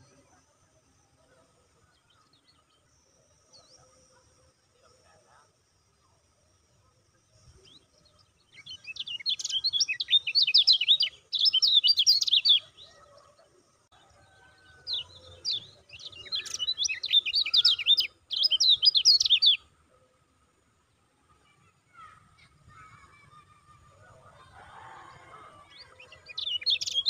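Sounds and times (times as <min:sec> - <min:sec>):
bird singing high chirps: 0:07.4 - 0:13.4, 0:14.6 - 0:19.8, 0:25.6 - 0:27.0.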